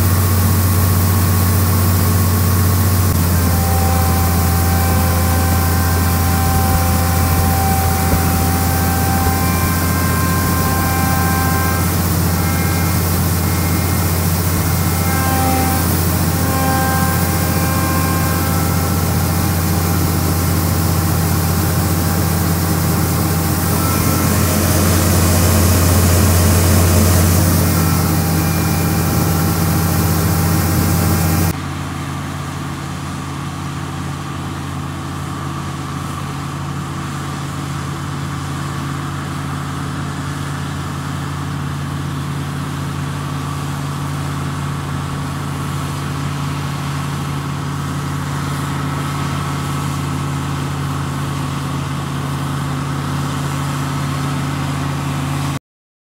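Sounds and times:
grain pouring through auger: 0.0s - 31.6s
combine harvester engine: 0.0s - 55.6s.

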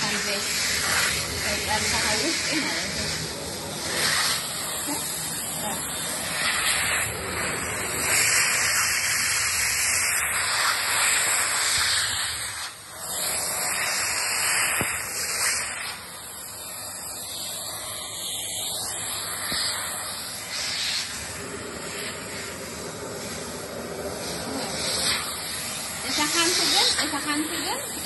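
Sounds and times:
vacuum cleaner rushing hiss: 0.0s - 28.0s.

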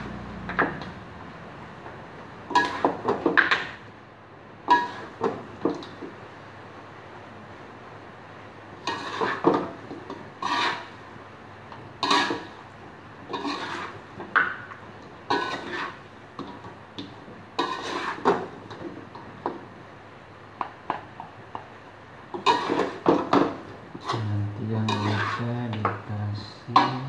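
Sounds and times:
metal spatula scraping a wok: 2.5s - 3.0s, 4.7s - 5.2s, 8.8s - 9.7s, 10.3s - 11.0s, 12.0s - 12.6s, 13.3s - 14.1s, 15.3s - 16.0s, 17.6s - 18.4s, 22.4s - 23.1s, 24.0s - 25.6s.

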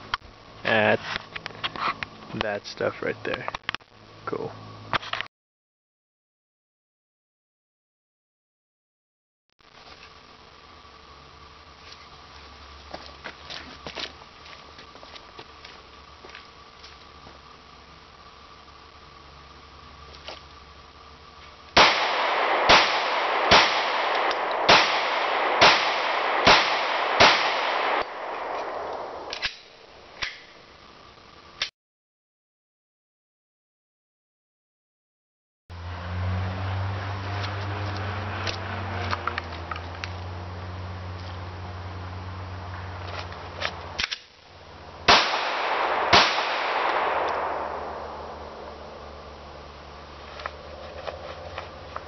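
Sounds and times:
handgun shots ringing: 21.8s - 30.4s, 45.1s - 48.3s.

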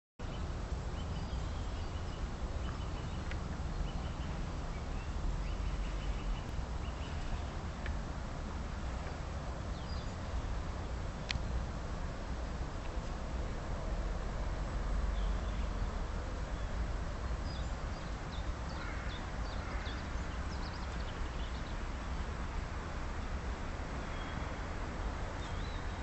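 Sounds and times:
small birds chirping: 0.2s - 8.0s, 16.5s - 22.2s, 25.4s - 26.0s
faint clicks: 2.6s - 3.4s, 7.8s - 8.0s.

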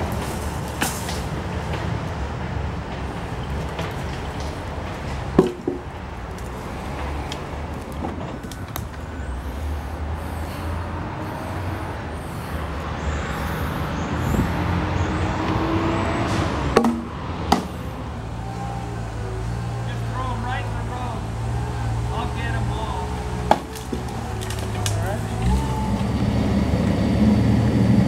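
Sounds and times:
skid steer engine rumbling: 0.0s - 28.0s
sharp wood knocks: 5.4s - 5.9s, 16.8s - 17.8s, 23.4s - 25.0s.

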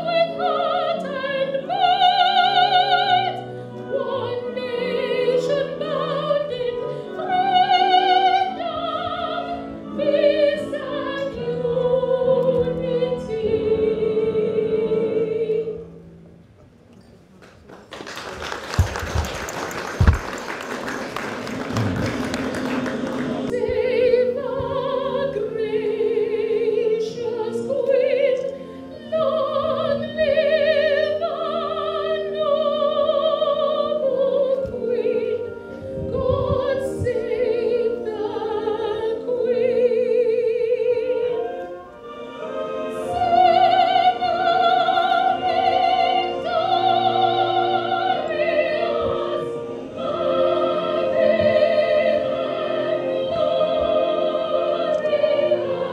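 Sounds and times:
woman singing: 0.0s - 15.8s, 23.5s - 41.6s, 42.8s - 55.9s
applause: 17.4s - 23.5s.

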